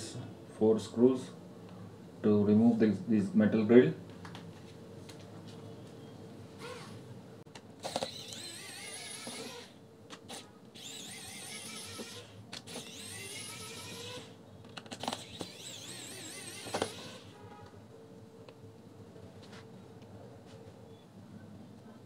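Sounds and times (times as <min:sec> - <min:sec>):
electric screwdriver motor whine: 0:06.6 - 0:07.0, 0:07.8 - 0:17.3.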